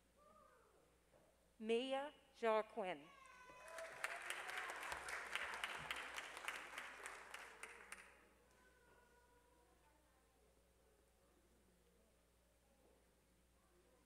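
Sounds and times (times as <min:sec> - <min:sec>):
audience applauding: 0:03.6 - 0:08.1.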